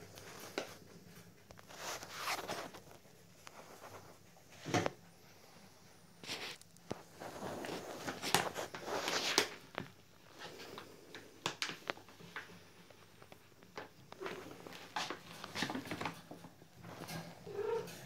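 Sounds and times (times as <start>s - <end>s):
crinkly bag rustling: 1.6s - 4.6s, 6.2s - 12.4s, 13.0s - 17.8s.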